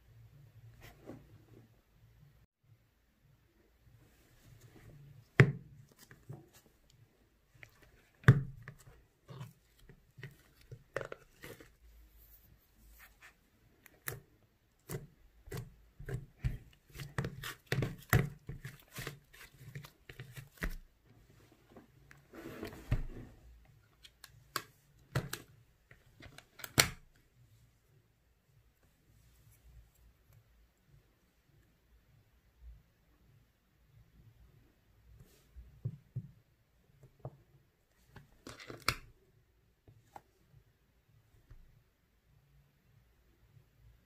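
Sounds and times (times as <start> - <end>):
plastic tub opened: 7.6 - 11.8, 14.8 - 20.9, 21.7 - 27.1, 38.1 - 39.1.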